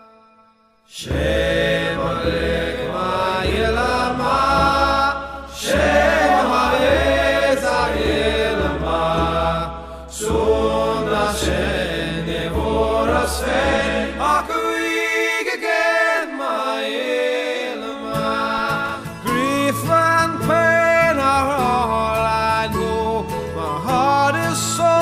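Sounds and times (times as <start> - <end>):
slow chant-like singing: 0.0 - 20.0.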